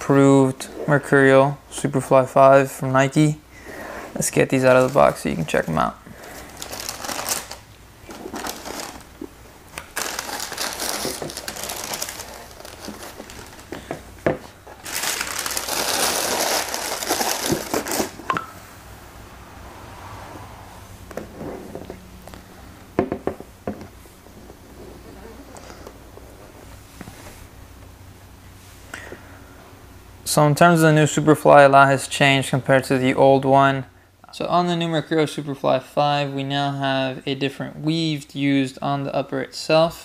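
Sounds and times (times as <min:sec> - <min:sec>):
tissue paper rustling and crinkling: 0:06.2 - 0:09.2, 0:09.9 - 0:13.9, 0:14.5 - 0:18.3.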